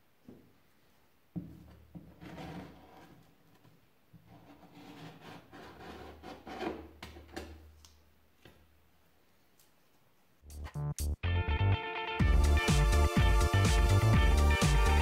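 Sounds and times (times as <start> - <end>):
paint scraper scraping wood: 2.0 - 3.3, 4.2 - 7.4.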